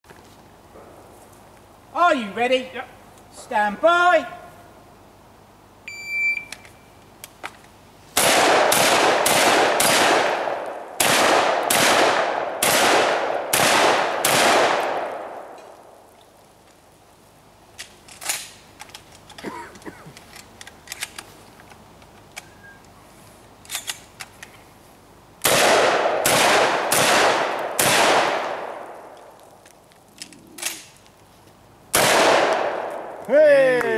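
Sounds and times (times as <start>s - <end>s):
shot timer beep: 5.9s - 6.6s
shotgun shots with echo: 8.2s - 15.2s, 25.5s - 28.9s, 31.9s - 33.0s
shells being reloaded clicks: 20.2s - 22.5s, 23.6s - 24.5s, 29.1s - 31.0s.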